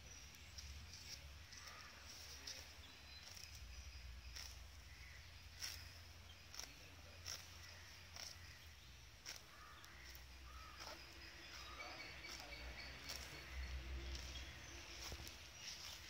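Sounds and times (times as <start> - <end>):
cow tearing grass: 0.6 - 16.0.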